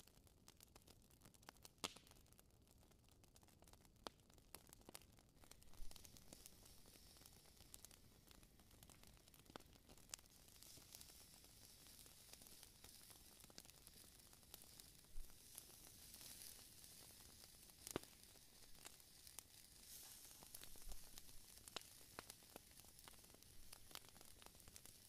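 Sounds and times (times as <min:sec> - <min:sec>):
fire pops and crackles: 0:00.0 - 0:25.0
meat sizzling on a grill: 0:05.4 - 0:25.0.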